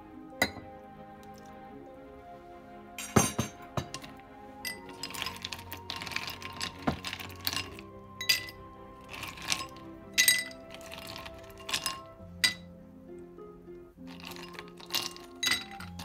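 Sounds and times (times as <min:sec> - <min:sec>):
background music: 0:00.0 - 0:16.0
ice cubes clinking into glass: 0:03.0 - 0:04.1, 0:04.7 - 0:12.7, 0:14.1 - 0:16.0.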